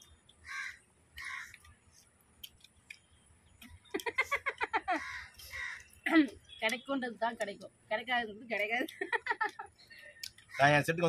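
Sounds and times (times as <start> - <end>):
woman laughing: 3.9 - 5.2, 8.7 - 9.7.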